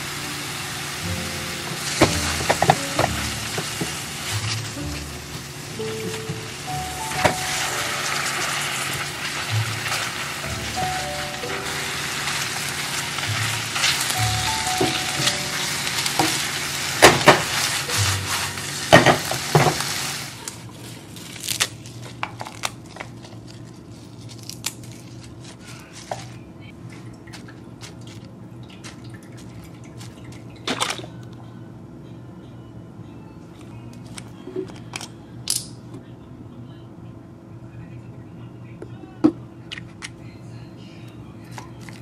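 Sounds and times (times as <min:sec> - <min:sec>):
sauce sizzling in a frying pan: 0:00.0 - 0:20.4
lettuce tearing rustles: 0:12.4 - 0:26.5, 0:27.3 - 0:30.5.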